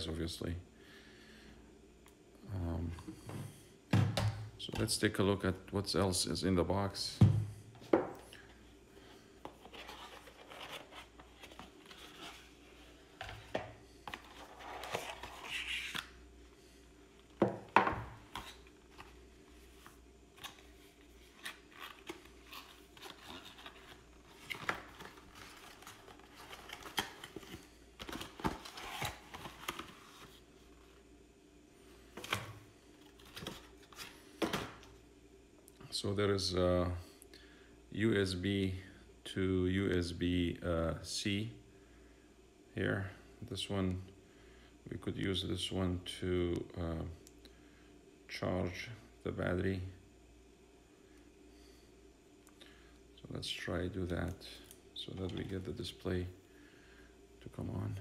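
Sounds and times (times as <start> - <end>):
cardboard rustling and scraping: 9.5 - 16.0.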